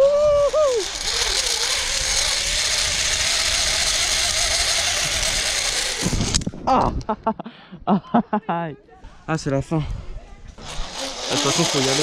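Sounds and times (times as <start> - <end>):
pulley trolley whirring on cable: 0.0 - 6.5, 10.6 - 12.0.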